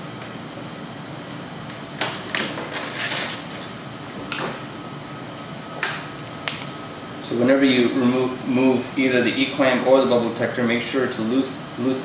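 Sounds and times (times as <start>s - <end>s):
room hum: 0.0s - 12.0s.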